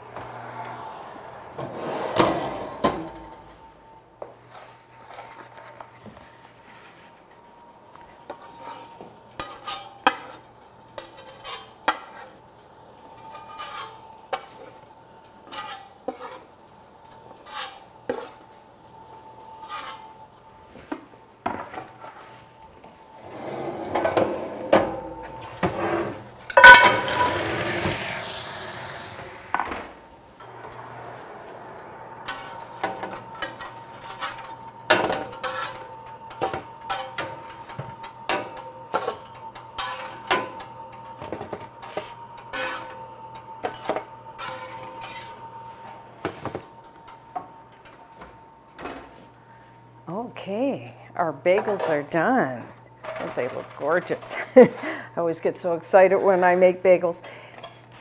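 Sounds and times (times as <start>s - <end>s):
metal spatula scraping and tapping: 15.4s - 16.5s, 26.5s - 27.3s
steam hissing: 27.0s - 29.6s
faint steady hum: 29.1s - 58.0s.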